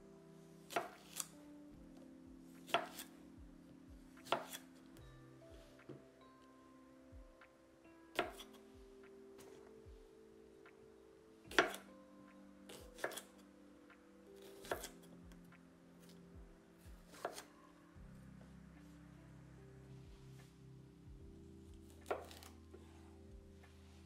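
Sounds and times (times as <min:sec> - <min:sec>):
knife chopping cucumber on board: 0:04.2 - 0:04.6, 0:08.2 - 0:08.5, 0:11.5 - 0:11.8, 0:12.8 - 0:13.3, 0:14.6 - 0:14.9, 0:17.1 - 0:17.5.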